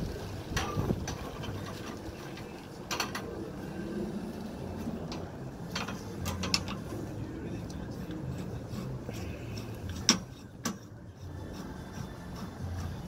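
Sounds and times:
metallic clicks and rattles: 0:05.0 - 0:07.0.

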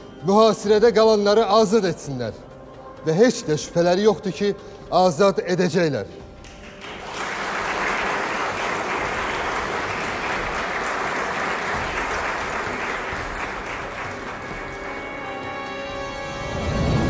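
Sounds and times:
crowd applauding: 0:06.4 - 0:15.7.

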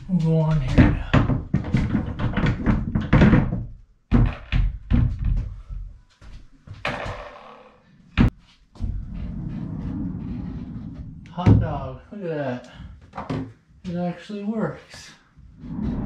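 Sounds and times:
door rolling along rail: 0:08.8 - 0:11.7.

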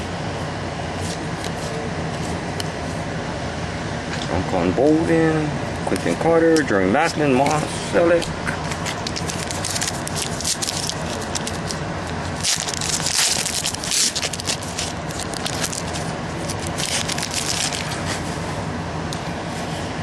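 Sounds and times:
card wrappers crinkling: 0:08.6 - 0:18.4.

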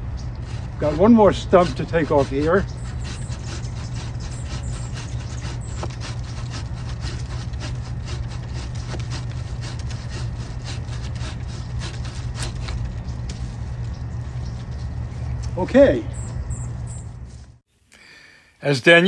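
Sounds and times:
hand saw cutting wood: 0:00.4 - 0:13.4.

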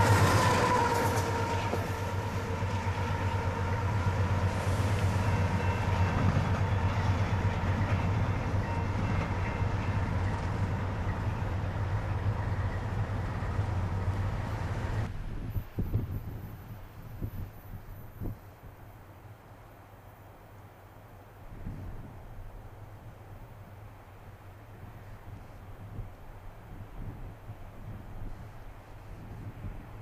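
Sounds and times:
train wheels rumbling on rails: 0:00.0 - 0:18.6
diesel locomotive drone: 0:00.0 - 0:30.0.

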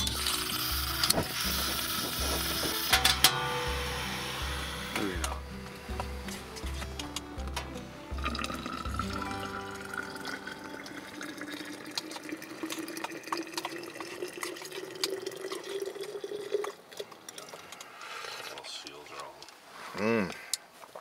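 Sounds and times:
liquid pouring into flask: 0:08.1 - 0:18.7.

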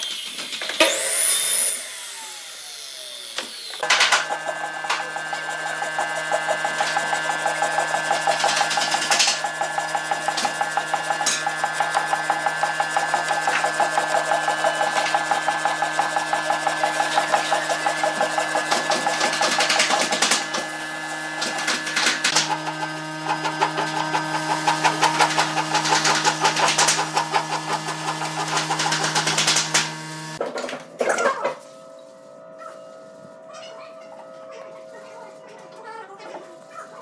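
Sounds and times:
steady hum: 0:03.8 - 0:30.4.

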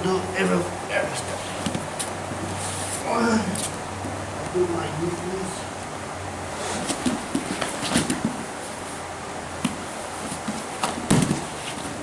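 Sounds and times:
fabric rustling and scraping: 0:06.6 - 0:09.1, 0:09.8 - 0:12.0
bodies thumping on mat: 0:06.8 - 0:08.6, 0:09.6 - 0:12.0.

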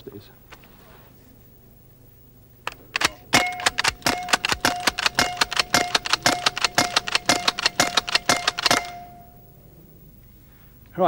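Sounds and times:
air rifle shots: 0:02.6 - 0:09.4
faint ringing tone: 0:03.2 - 0:10.8.

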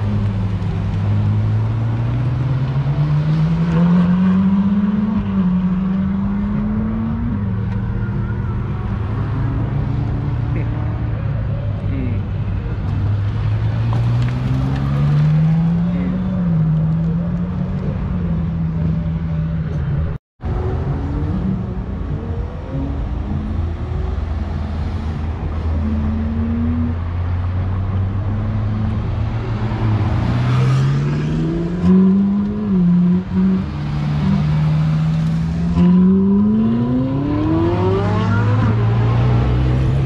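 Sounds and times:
car engines pulling away: 0:00.0 - 0:40.0
car engine revving: 0:11.9 - 0:19.9, 0:20.5 - 0:40.0.

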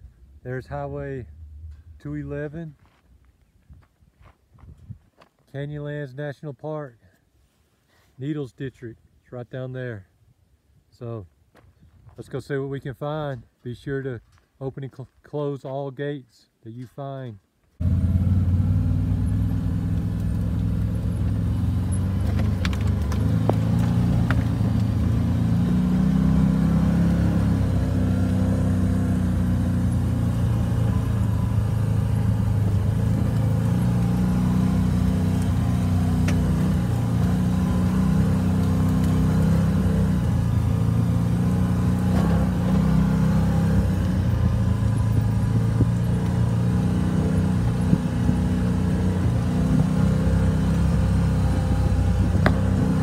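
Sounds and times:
off-road vehicle engine running: 0:17.8 - 0:53.0.

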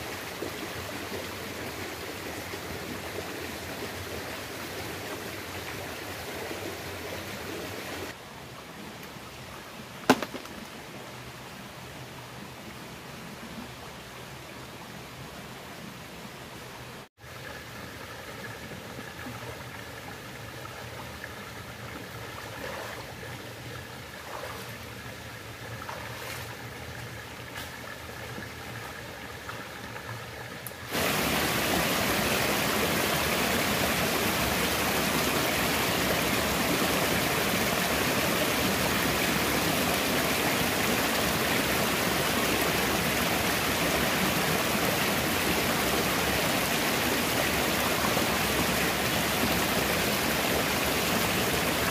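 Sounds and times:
stream running over stones: 0:00.0 - 0:51.9
wading splashes: 0:24.1 - 0:24.9, 0:25.7 - 0:27.9.

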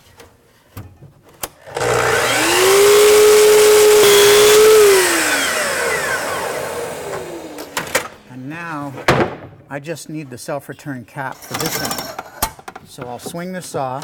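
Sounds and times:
saw blade cutting wood: 0:01.7 - 0:07.8
miter saw whining: 0:01.7 - 0:07.9.

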